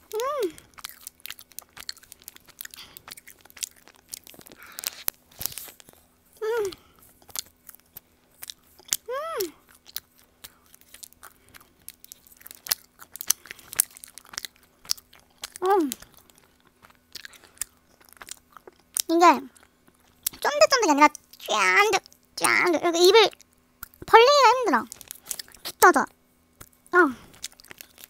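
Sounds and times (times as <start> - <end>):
sticky chewing mouth sounds: 0.0 - 22.7, 23.3 - 24.1, 24.8 - 28.0
person humming mm: 6.4 - 6.8.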